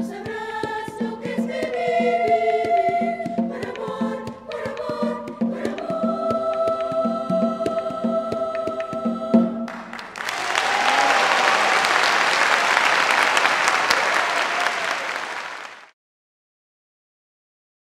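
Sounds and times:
children's choir singing: 0.0s - 15.8s
drum strokes: 0.1s - 10.0s
audience applause: 9.7s - 15.9s
audience cheer: 9.7s - 15.9s.

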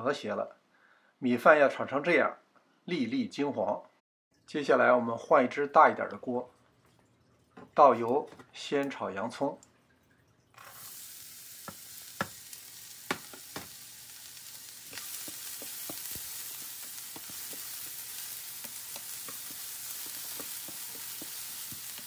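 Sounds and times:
onion sizzling in hot oil: 10.6s - 22.0s
wooden spatula stirring in pan: 11.6s - 22.0s.

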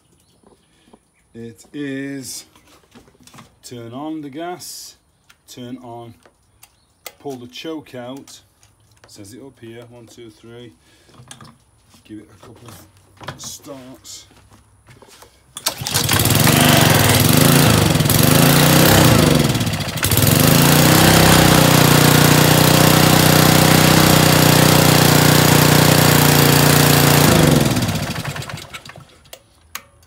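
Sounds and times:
pull-starting engine: 15.5s - 29.9s
pressure washer engine running: 15.6s - 29.1s.

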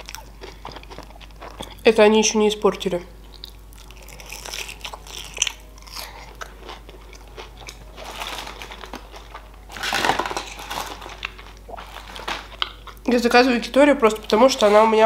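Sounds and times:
person chewing crunchy food: 0.0s - 1.9s, 3.2s - 13.1s.

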